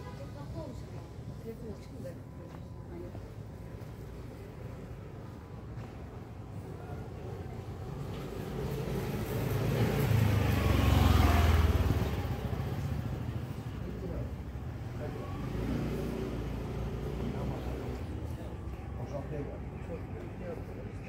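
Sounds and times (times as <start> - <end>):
motor vehicle passing by: 7.5 - 21.0.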